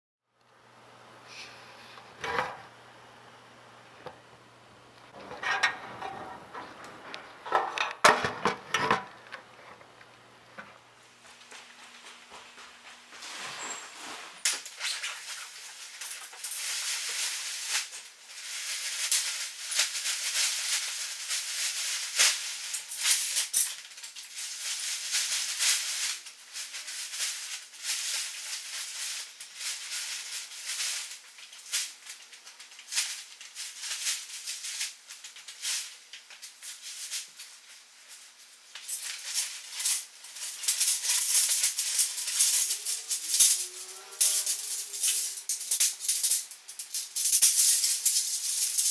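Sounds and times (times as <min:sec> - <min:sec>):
nylon fabric rustling and crinkling: 0:12.8 - 0:45.6.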